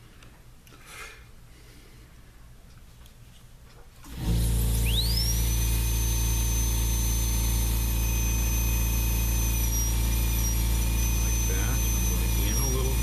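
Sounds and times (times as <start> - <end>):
low hum: 4.1 - 13.0
rotary carving tool whining: 4.1 - 13.0.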